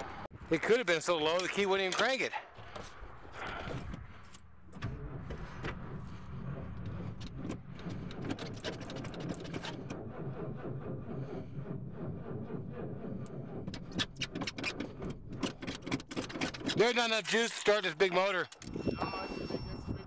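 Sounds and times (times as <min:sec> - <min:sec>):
starter motor cranking slowly: 0:03.3 - 0:18.9.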